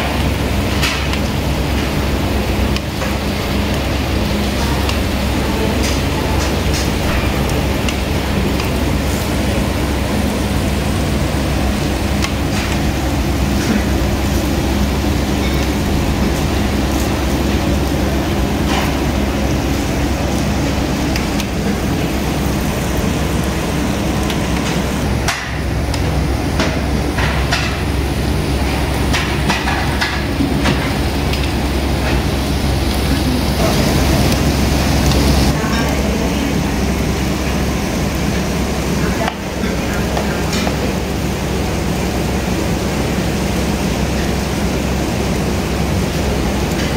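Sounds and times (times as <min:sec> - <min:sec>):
continuous hiss: 0:00.0 - 0:46.9.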